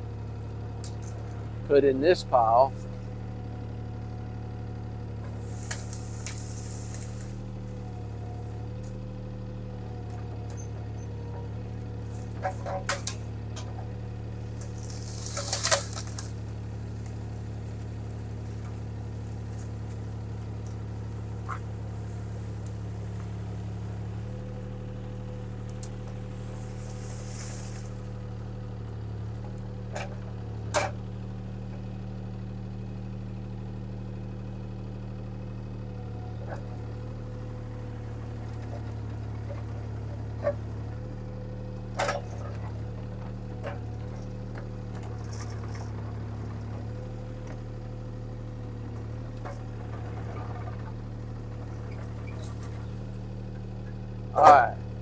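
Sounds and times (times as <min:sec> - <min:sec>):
skid steer engine running: 0:00.0 - 0:55.0
brush and limbs rustling and knocking: 0:05.3 - 0:07.8, 0:12.0 - 0:30.2.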